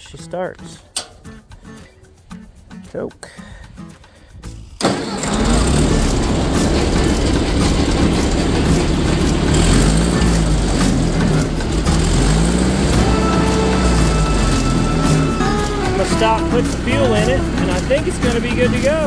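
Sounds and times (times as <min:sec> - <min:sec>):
tractor engine starting and running: 0:04.6 - 0:19.0.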